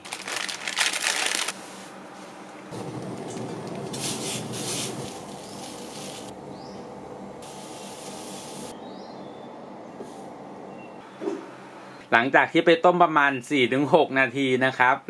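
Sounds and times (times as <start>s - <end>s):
gas burner hiss: 2.7s - 6.4s, 7.3s - 8.8s.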